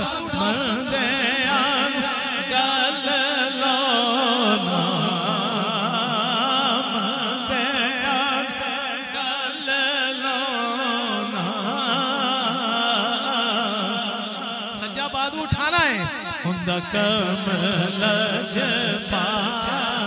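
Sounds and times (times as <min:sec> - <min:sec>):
man singing into a microphone: 0:00.0 - 0:20.0.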